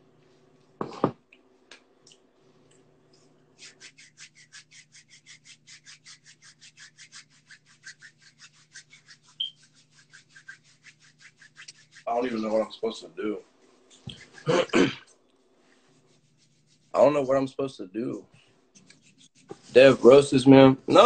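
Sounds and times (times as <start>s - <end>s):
faint hum: 0.0s - 21.0s
rapid scraping strokes: 3.6s - 14.8s, 15.5s - 17.5s, 18.4s - 20.5s.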